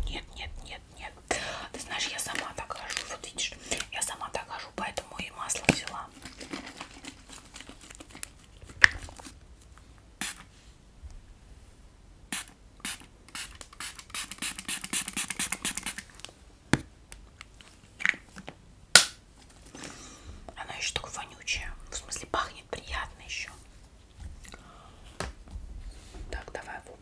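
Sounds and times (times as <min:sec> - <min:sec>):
spray bottle spritzing: 0:10.2 - 0:10.4, 0:12.3 - 0:16.1
fingers rubbing through hair: 0:13.7 - 0:16.1.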